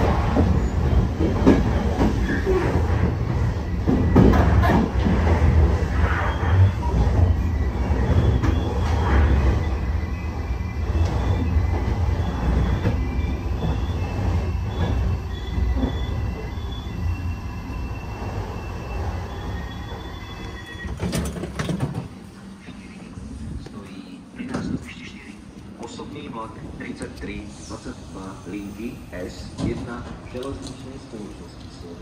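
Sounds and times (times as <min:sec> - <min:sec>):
wheels and brakes squealing: 0:00.0 - 0:21.5
train rolling on rails: 0:00.0 - 0:32.0.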